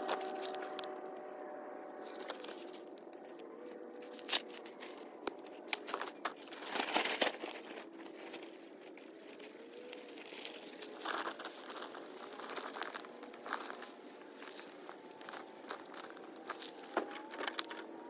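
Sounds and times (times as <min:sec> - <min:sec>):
small clicks and crunches: 0:00.0 - 0:18.0
fabric bag rustling: 0:02.0 - 0:18.0.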